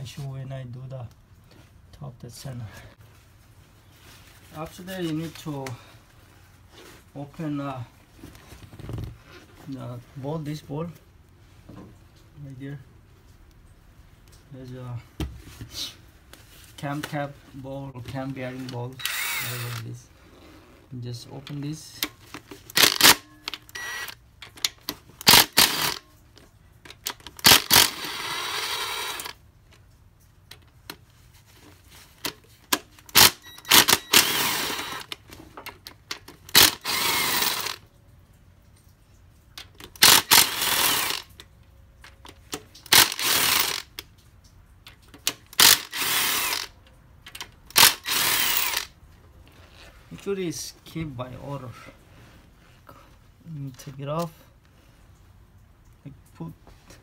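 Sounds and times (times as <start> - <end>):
cordless power tool spinning: 18.9 - 20.7, 22.7 - 24.2, 25.2 - 26.1, 27.4 - 29.4, 33.1 - 35.2, 36.5 - 37.8, 40.0 - 41.3, 42.9 - 43.9, 45.6 - 46.8, 47.7 - 48.9.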